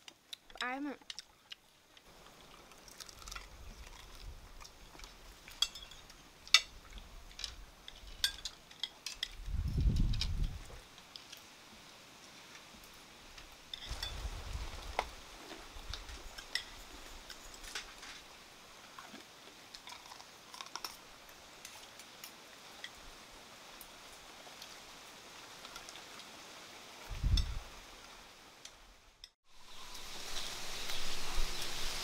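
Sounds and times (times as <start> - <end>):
spoons and dishes clicking: 5.5 - 6.7.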